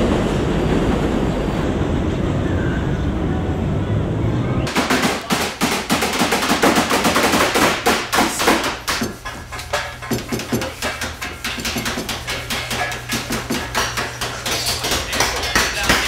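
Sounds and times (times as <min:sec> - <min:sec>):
hammers striking wooden hull: 0:04.7 - 0:16.0.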